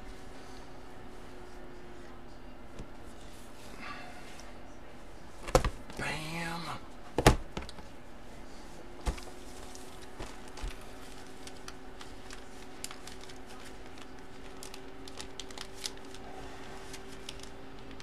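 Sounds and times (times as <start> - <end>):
faint steady hum: 0.0 - 18.0
plastic bag crinkling: 9.1 - 18.0.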